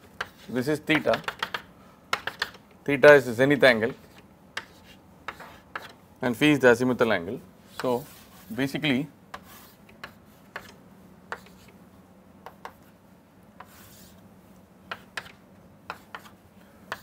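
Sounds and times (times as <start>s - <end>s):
chalk tapping and scratching on chalkboard: 0.2s - 2.6s, 3.8s - 6.0s, 9.3s - 11.8s, 12.4s - 13.0s, 13.6s - 14.2s, 14.9s - 17.0s.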